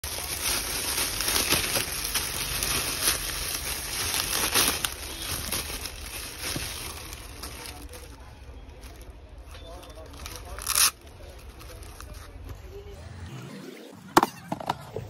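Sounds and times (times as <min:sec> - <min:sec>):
plastic packaging crinkling: 0:00.0 - 0:12.5.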